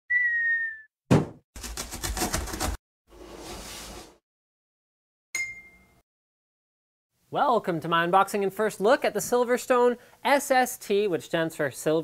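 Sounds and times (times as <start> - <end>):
sharp thump: 1.1 - 1.4.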